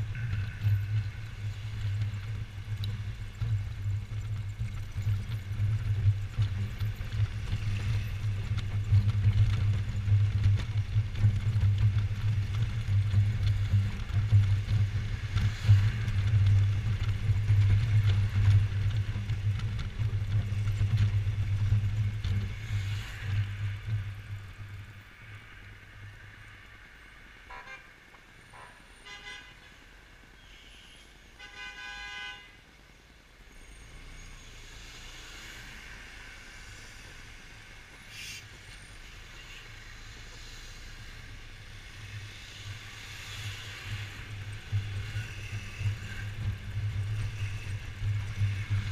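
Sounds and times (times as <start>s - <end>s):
vehicle horn honking: 27.5s - 27.9s, 28.6s - 29.7s, 31.4s - 32.6s.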